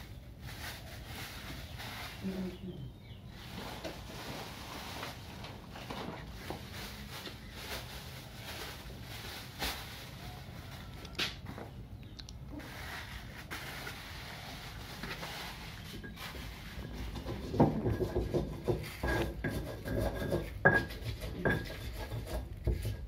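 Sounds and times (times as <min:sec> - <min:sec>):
pots and dishes clattering: 0:16.0 - 0:23.0.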